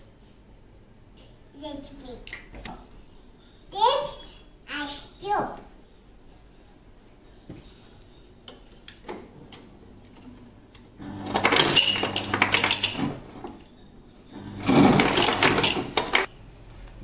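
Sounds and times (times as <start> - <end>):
ice dispenser motor hum: 10.8 - 16.3
ice cubes clattering into cup: 11.3 - 13.2, 14.7 - 16.3.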